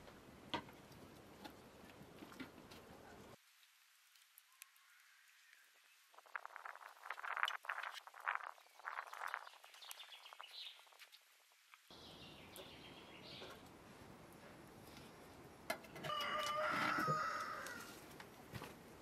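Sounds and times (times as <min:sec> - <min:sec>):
rooster crowing: 0:16.0 - 0:18.0.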